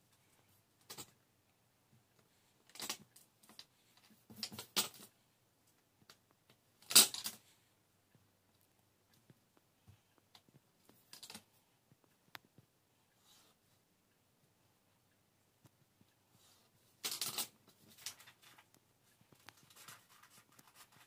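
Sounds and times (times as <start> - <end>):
paper rustling: 17.0 - 18.7, 19.3 - 21.0.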